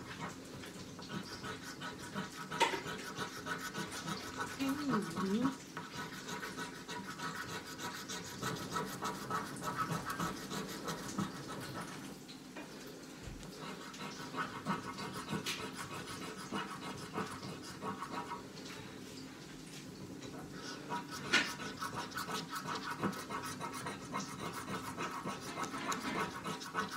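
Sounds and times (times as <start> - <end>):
scratch card being scratched: 1.3 - 12.0, 21.1 - 26.9.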